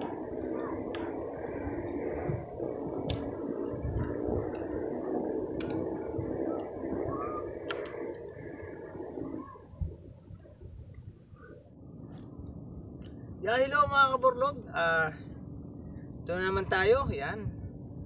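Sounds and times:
sharp clicks: 0.0s - 11.5s.

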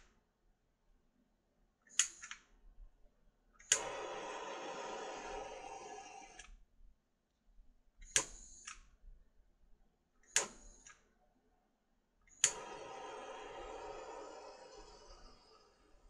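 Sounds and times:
torch igniter clicks: 3.6s - 6.6s, 10.3s - 11.0s, 12.3s - 15.6s
torch flame hissing: 3.7s - 6.4s, 12.3s - 16.0s.

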